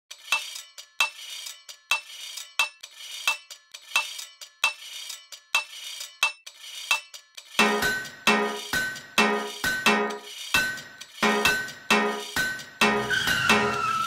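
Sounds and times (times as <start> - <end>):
metallic clinking percussion beat: 0.1 - 14.0.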